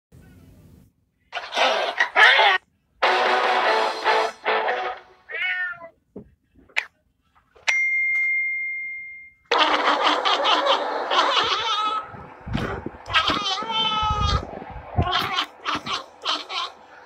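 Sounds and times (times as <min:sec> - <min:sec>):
cat meowing loudly: 0:02.2 - 0:02.6, 0:05.3 - 0:05.9, 0:10.0 - 0:12.1, 0:13.1 - 0:16.8
bell-like ding: 0:07.7 - 0:09.5.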